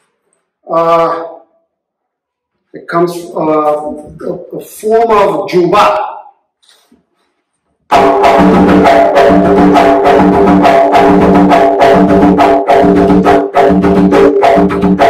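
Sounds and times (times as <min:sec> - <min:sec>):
hand drum rhythm: 0:07.9 - 0:15.0.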